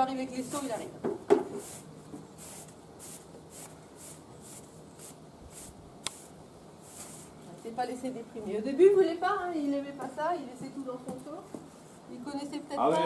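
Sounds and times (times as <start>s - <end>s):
brush swishing through horse hair: 1.5s - 7.4s.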